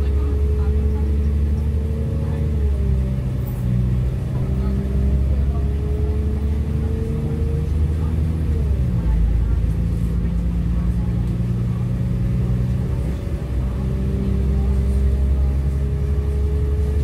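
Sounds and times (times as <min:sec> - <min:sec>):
train rumble inside carriage: 0:00.0 - 0:17.0.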